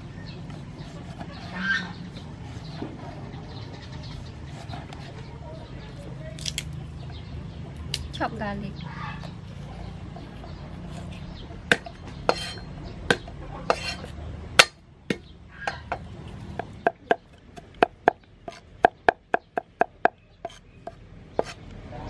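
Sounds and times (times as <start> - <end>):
cleaver chopping on wooden block: 11.7 - 21.6.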